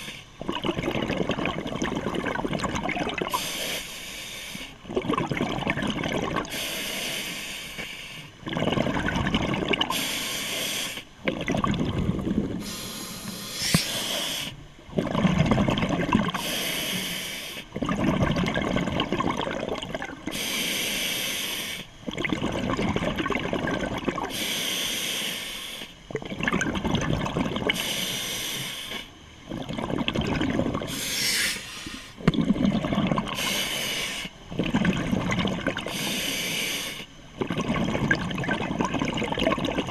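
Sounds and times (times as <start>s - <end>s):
bubbling exhalations: 0.0s - 3.4s, 4.8s - 6.6s, 8.4s - 10.1s, 11.2s - 12.8s, 13.6s - 16.5s, 17.8s - 20.4s, 22.1s - 24.4s, 26.1s - 27.9s, 29.5s - 31.6s, 32.2s - 33.9s, 34.5s - 36.3s, 37.4s - 39.9s
regulator hissing inhalations: 3.4s - 4.8s, 6.5s - 8.3s, 9.9s - 11.1s, 12.6s - 14.6s, 16.4s - 17.7s, 20.3s - 21.9s, 24.3s - 26.0s, 27.7s - 29.1s, 30.9s - 32.2s, 33.4s - 34.4s, 35.9s - 37.1s.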